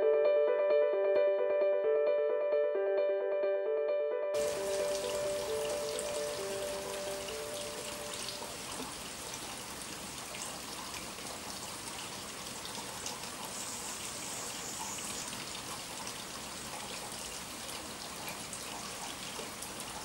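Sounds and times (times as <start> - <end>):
light rain pattering: 4.4 - 20.0.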